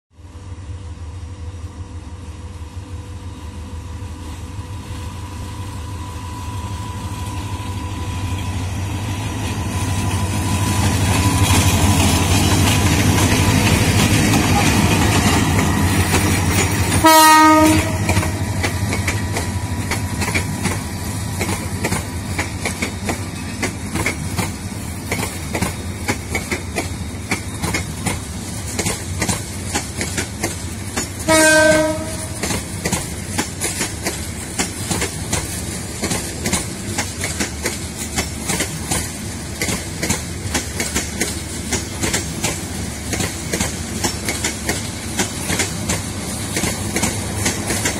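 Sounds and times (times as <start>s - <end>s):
train rumbling past: 0.1s - 47.9s
wheels clickety-clack: 9.3s - 47.9s
train horn blast: 16.9s - 18.7s, 31.2s - 32.5s.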